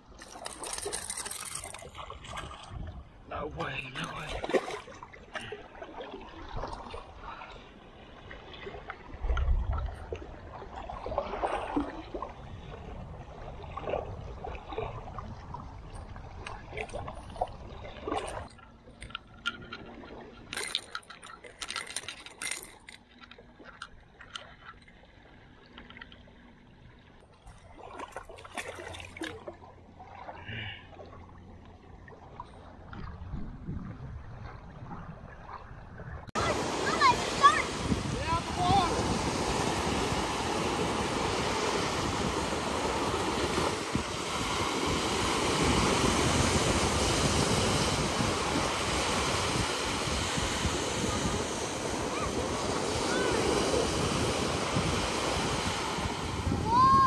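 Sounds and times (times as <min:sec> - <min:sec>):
water sloshing around legs: 0:00.0 - 0:03.0, 0:03.8 - 0:12.9, 0:13.5 - 0:33.4
water splashes: 0:00.0 - 0:57.0.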